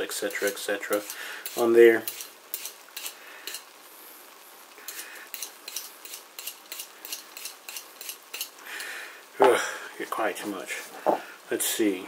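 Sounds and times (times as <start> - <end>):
carrot peeler scraping: 4.9 - 8.5.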